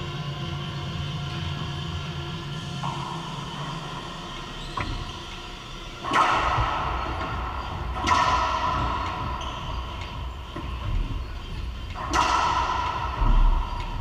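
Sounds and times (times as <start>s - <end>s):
racquet hitting ball with echo: 6.0s - 14.0s.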